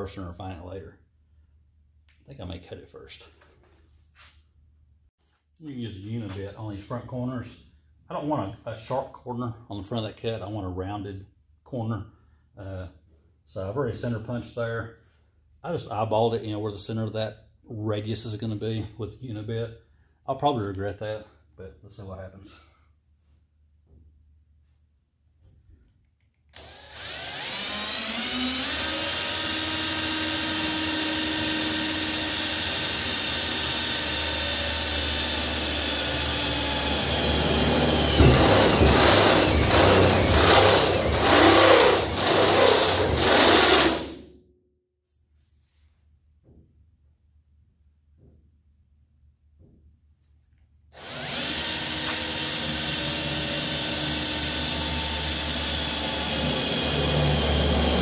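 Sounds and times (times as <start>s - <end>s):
cordless drill boring sheet metal: 26.5s - 44.2s, 51.0s - 58.0s.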